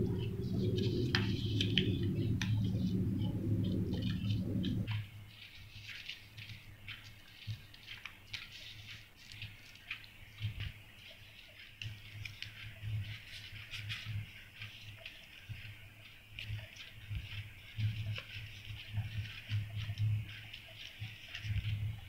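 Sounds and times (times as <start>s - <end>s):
paper crinkling and rustling: 4.9s - 22.0s.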